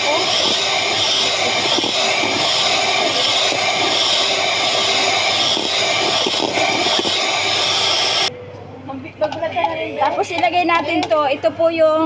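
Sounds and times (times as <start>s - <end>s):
electric hand mixer whipping cream: 0.0s - 8.3s.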